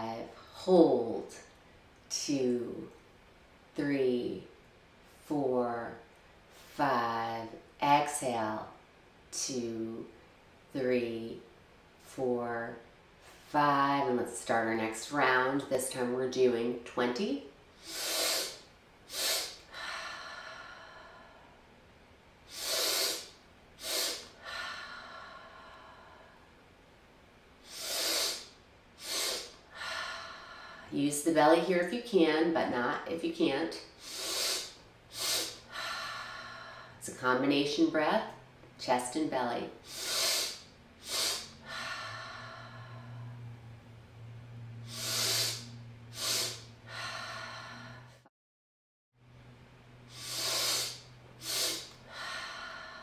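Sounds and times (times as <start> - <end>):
quick inhales through nose: 17.8 - 19.6, 34.0 - 35.6, 39.8 - 41.6, 50.1 - 52.0
woman exhaling through mouth: 17.8 - 21.4, 39.8 - 43.5, 44.8 - 48.2, 50.1 - 53.0.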